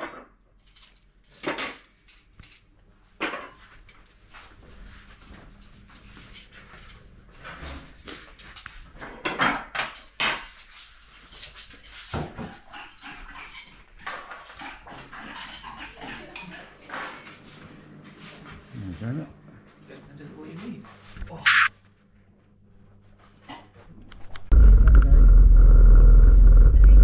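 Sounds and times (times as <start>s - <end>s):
crockery and cutlery clinking: 0.0s - 4.2s, 5.1s - 17.5s.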